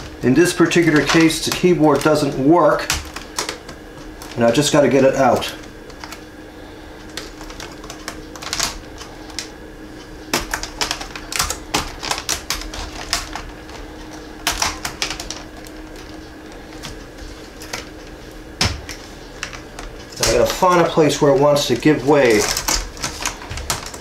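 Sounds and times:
plastic clicks and clatter: 0:10.3 - 0:17.0.

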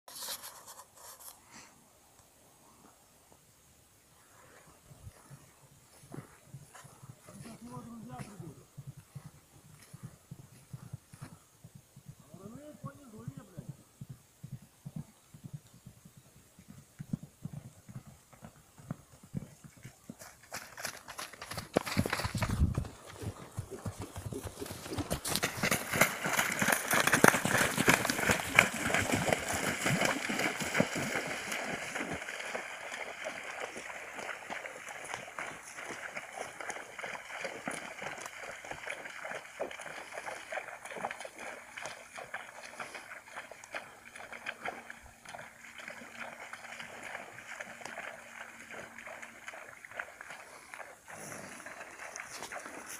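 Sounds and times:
horse hooves on grassy ground: 0:04.4 - 0:52.9
shallow water splashing: 0:25.6 - 0:52.9.

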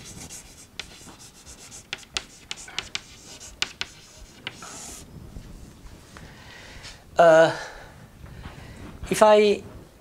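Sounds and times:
chalk tapping and scratching on board: 0:00.0 - 0:05.0.

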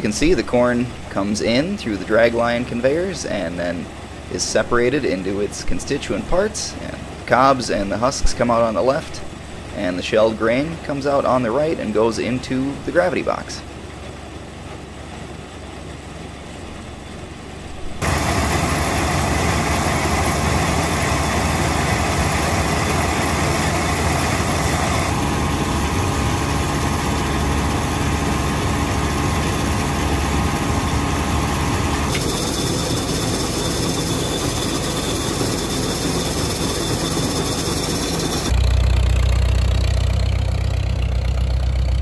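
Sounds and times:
tractor engine: 0:00.0 - 0:42.0
corn sheller running: 0:18.0 - 0:41.2.

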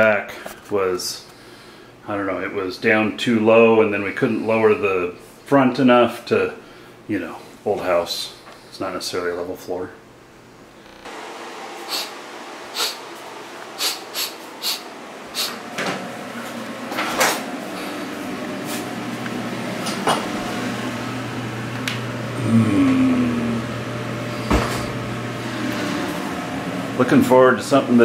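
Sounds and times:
steady low hum: 0:09.8 - 0:28.0.

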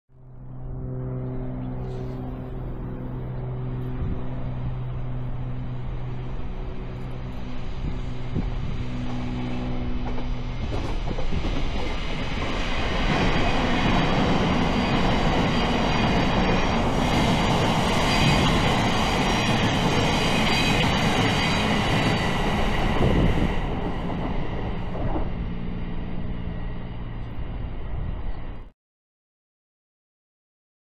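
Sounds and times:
high whine: 0:00.2 - 0:28.7
train passing with wheel rush: 0:00.2 - 0:28.7.

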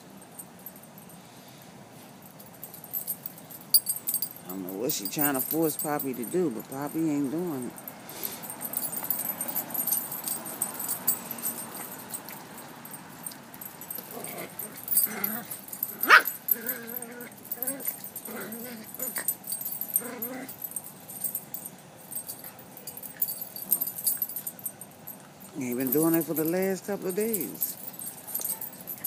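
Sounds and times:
dog yelp: 0:14.3 - 0:17.9.

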